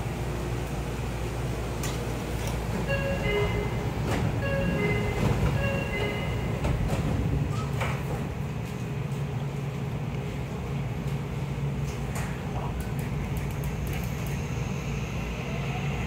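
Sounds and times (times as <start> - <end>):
electric train hum: 0.0 - 16.0
train doors closing with a thump: 1.8 - 8.7
electronic chime melody: 2.9 - 6.5.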